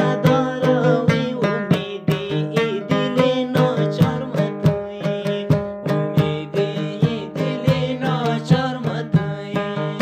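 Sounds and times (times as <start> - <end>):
lute strummed in steady rhythm: 0.0 - 10.0.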